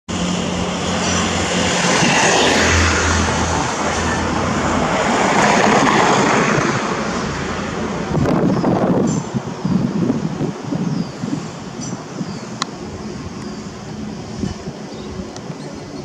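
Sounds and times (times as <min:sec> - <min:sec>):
car passing: 0:00.1 - 0:16.0
motorcycle engine hum: 0:00.1 - 0:16.0
rush of engine and tyre noise: 0:00.1 - 0:16.0.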